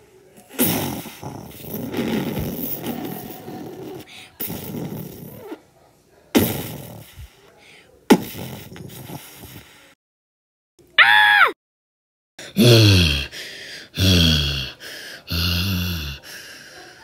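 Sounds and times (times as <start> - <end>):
person imitating truck engine: 12.5 - 13.3.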